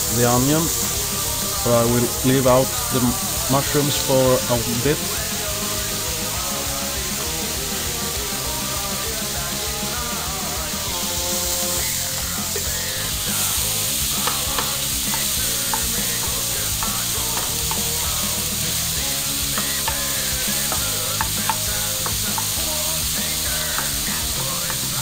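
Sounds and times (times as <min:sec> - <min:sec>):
background music: 0:00.0 - 0:25.0
bacon and onion sizzling: 0:00.0 - 0:25.0
spatula scraping a pan: 0:10.8 - 0:25.0.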